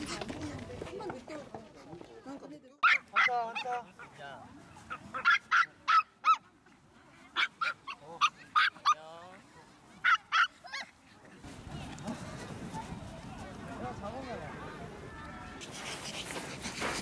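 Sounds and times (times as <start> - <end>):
small dogs yapping: 2.8 - 3.7, 7.4 - 9.0.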